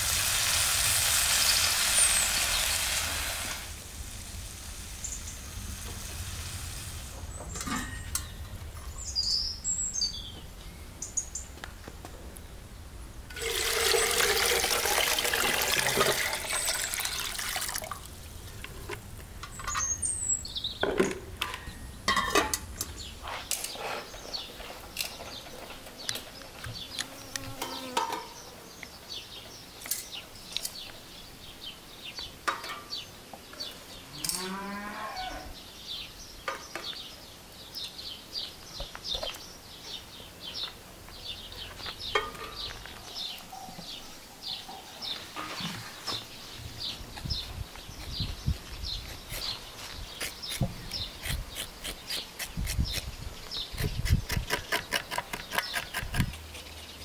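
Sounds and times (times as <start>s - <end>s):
small birds chirping: 7.2s - 13.0s, 18.3s - 21.0s, 21.6s - 34.6s, 35.6s - 57.0s
cow mooing: 34.1s - 35.5s.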